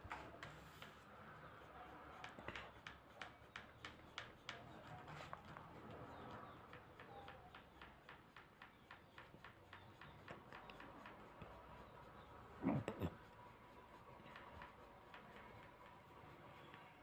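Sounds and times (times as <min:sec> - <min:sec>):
pencil scratching on paper: 0:00.0 - 0:17.0.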